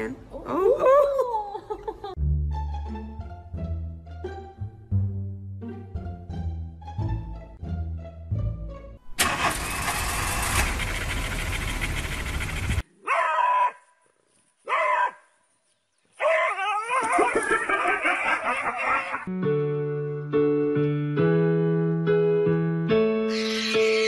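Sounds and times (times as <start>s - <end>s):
small dog barking: 13.0s - 13.8s, 14.6s - 15.2s, 16.2s - 16.7s.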